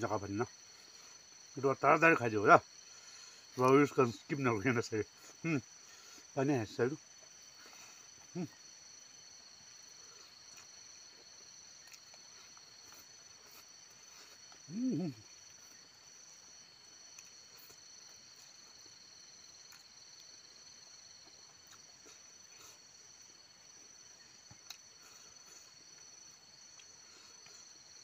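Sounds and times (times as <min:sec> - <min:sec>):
insects chirring: 0:00.0 - 0:28.0
man humming or grunting: 0:14.7 - 0:15.3.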